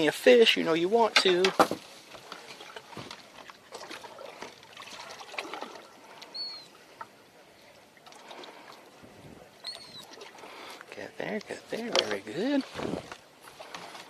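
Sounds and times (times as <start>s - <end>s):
faint trickling water: 0.0s - 14.0s.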